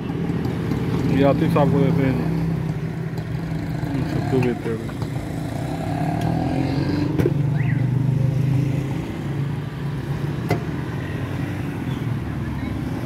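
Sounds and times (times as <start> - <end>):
vehicle engine running: 0.0 - 6.0.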